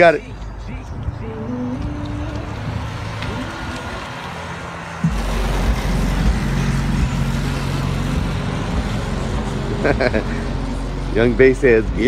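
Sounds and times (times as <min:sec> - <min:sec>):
car driving off slowly: 0:00.3 - 0:12.0
heavy bass from car stereo: 0:04.9 - 0:12.0.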